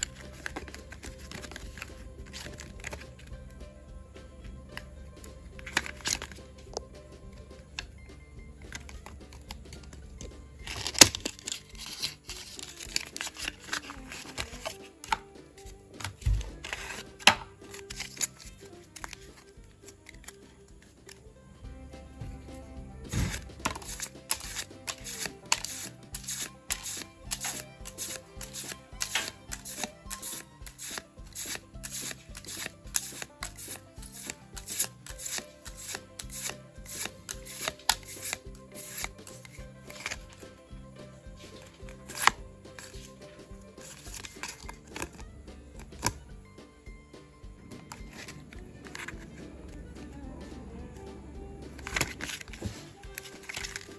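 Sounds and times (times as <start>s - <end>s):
cards rustling and crinkling: 0.0s - 7.9s, 8.6s - 21.4s, 22.0s - 46.3s, 47.7s - 53.9s
quiet background music: 0.0s - 53.9s
sharp clicks and taps: 41.4s - 46.7s.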